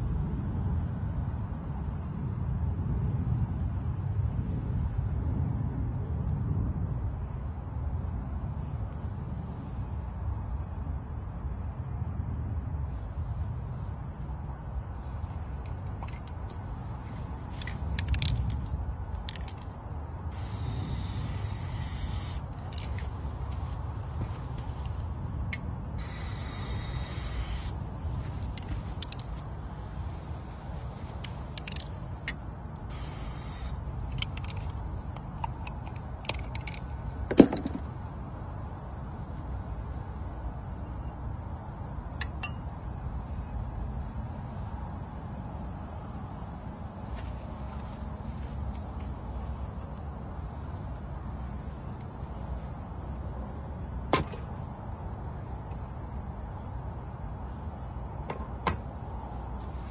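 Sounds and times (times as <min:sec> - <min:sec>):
steady low rumble: 0:00.0 - 0:59.9
small clicks and rattles: 0:15.6 - 0:19.7, 0:34.1 - 0:37.8
spray paint can hissing: 0:20.3 - 0:22.5, 0:26.0 - 0:27.8, 0:32.8 - 0:33.8.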